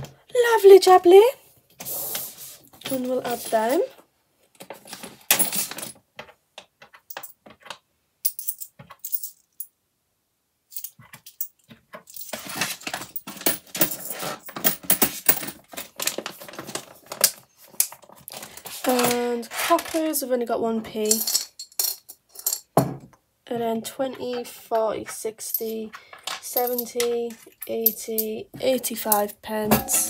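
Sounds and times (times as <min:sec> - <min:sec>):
coins clinking: 0:05.3 - 0:06.0, 0:08.2 - 0:09.7, 0:10.7 - 0:15.9, 0:21.0 - 0:22.7, 0:25.4 - 0:28.4.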